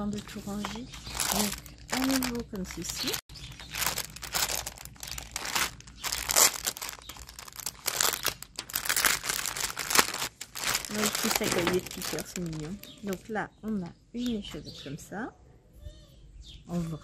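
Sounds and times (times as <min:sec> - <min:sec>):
plastic packaging crinkling: 0:00.0 - 0:13.4.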